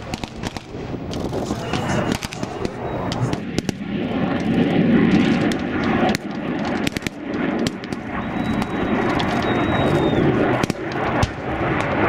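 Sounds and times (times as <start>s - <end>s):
gunfire cracks: 0.0s - 12.0s
low engine rumble: 0.0s - 12.0s
thin high whine: 1.4s - 3.4s.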